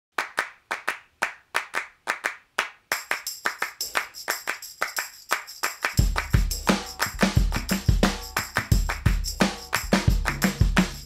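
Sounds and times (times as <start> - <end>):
rhythmic hand claps: 0.2 - 11.0.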